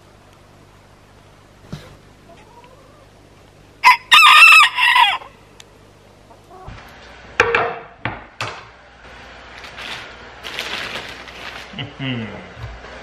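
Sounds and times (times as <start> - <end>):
rooster crowing: 3.8 - 5.4.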